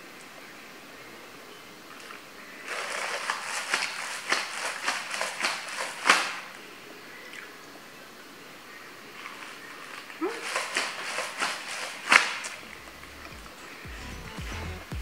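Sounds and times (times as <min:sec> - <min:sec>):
wrapper crinkling: 0:02.7 - 0:06.5, 0:09.4 - 0:13.3.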